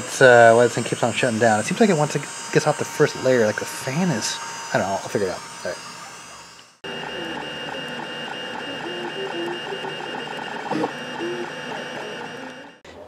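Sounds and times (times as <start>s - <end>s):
stepper motors whining: 0.0s - 12.8s.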